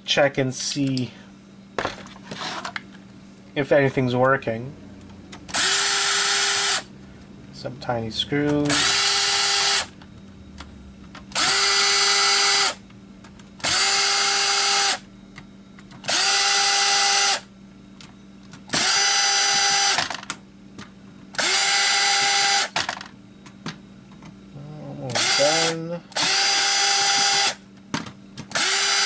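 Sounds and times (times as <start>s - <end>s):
cordless drill whining: 5.5s - 6.9s, 8.7s - 9.9s, 11.4s - 12.8s, 13.6s - 15.0s, 16.1s - 17.5s, 18.8s - 20.1s, 21.4s - 22.8s, 25.2s - 27.6s, 28.5s - 29.0s.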